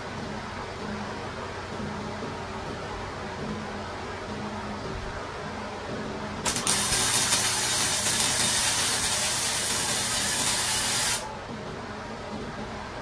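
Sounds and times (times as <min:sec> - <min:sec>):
welder arc crackling and sizzling: 0:06.4 - 0:11.3.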